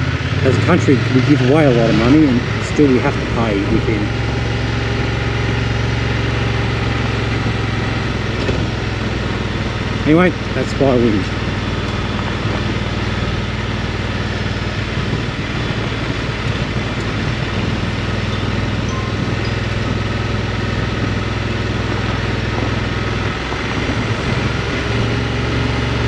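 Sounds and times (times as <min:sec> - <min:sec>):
motorcycle engine at low revs: 0:00.0 - 0:26.0
wind and road noise: 0:00.0 - 0:26.0.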